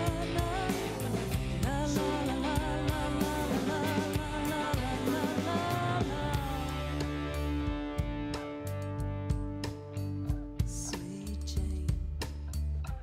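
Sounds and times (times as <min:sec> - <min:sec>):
live band playing country-rock: 0:00.0 - 0:11.8
steady drum beat: 0:00.0 - 0:13.0.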